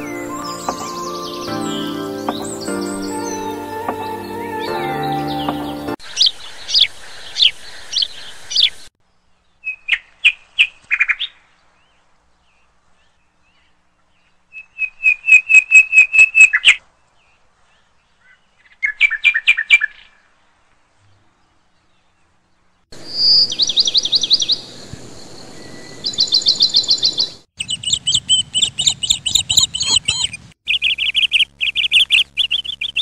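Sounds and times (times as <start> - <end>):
birds whistling and chirping: 0.0 - 6.0, 23.0 - 33.0.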